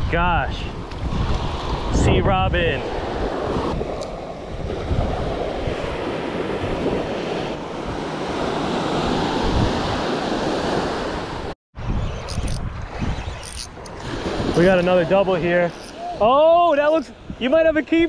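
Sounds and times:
wind buffeting microphone: 0.0 - 18.0
surf waves washing onto sand: 2.8 - 11.5, 13.8 - 18.0.

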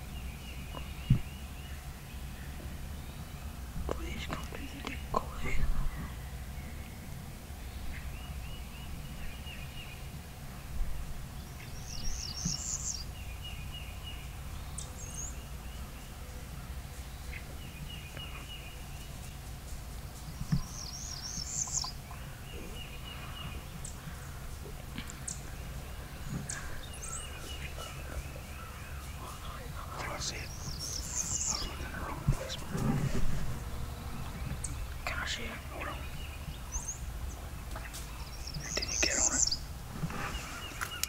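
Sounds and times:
bird twittering song: 0.0 - 19.5, 20.2 - 41.0
low background rumble: 0.0 - 40.8
songbird trilled phrase: 38.5 - 39.6.

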